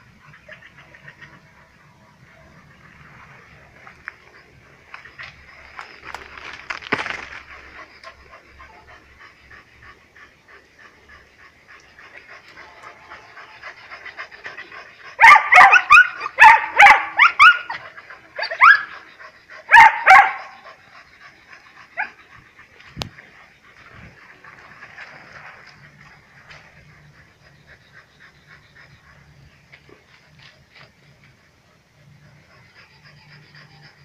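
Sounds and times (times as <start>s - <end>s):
dogs barking: 12.1s - 21.1s.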